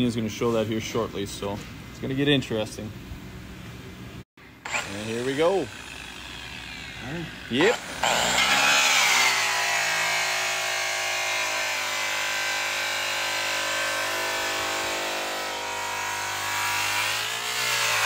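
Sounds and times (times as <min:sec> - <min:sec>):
electric polisher running: 0:04.7 - 0:18.0.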